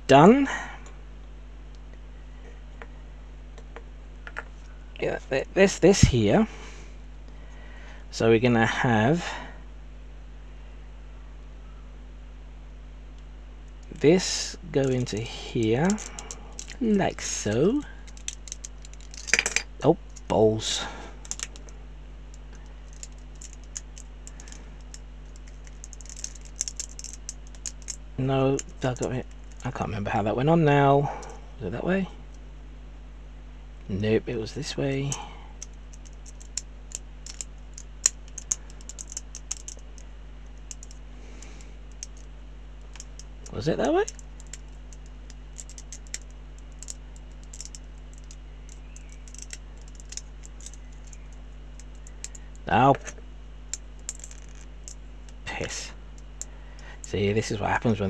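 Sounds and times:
low electrical hum: 0:00.0 - 0:58.0
plastic parts clicking: 0:14.8 - 0:20.4, 0:21.2 - 0:21.7, 0:22.3 - 0:29.8, 0:35.0 - 0:40.0, 0:40.6 - 0:42.3, 0:42.9 - 0:57.2.

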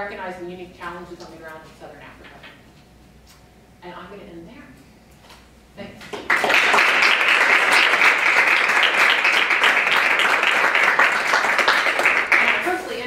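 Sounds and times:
people talking: 0:00.0 - 0:02.5, 0:03.8 - 0:04.8, 0:12.4 - 0:13.0
audience applauding: 0:06.2 - 0:12.8.

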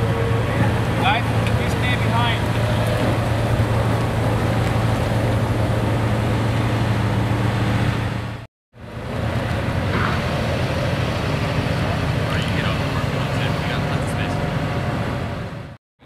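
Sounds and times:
car engine idling with deep hum: 0:11.4 - 0:14.8.

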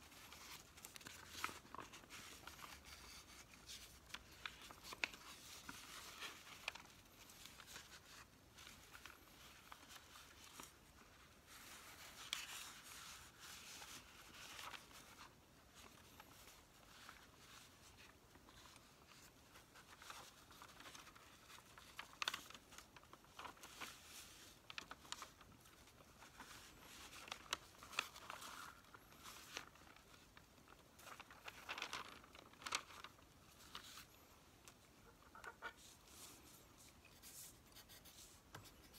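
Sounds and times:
newsprint pages rustling: 0:00.0 - 0:38.7.

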